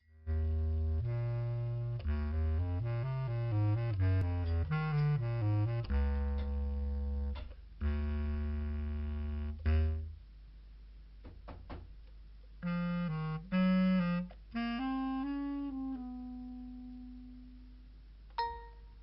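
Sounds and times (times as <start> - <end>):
film music with held notes: 0.2 - 10.0, 12.6 - 17.7.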